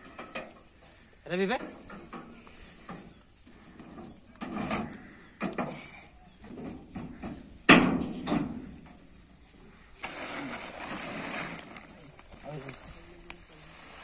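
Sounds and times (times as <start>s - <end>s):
sheet metal clanks and knocks: 6.5s - 8.7s
plastic tarpaulin rustling: 9.8s - 14.0s.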